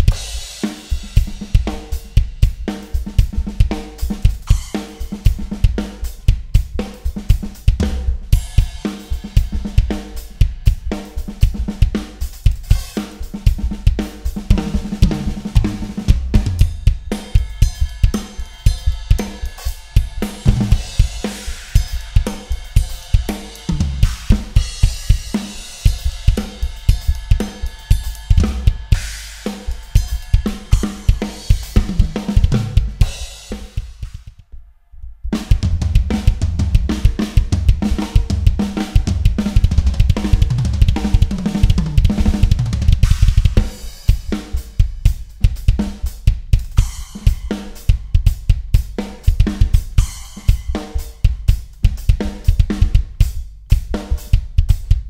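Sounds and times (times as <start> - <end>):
bass drum strokes: 0.0 - 34.4, 35.1 - 55.0
tom drum fill: 0.0 - 34.4, 35.3 - 55.0
snare drum: 12.5 - 17.4, 26.2 - 34.4, 35.4 - 53.2.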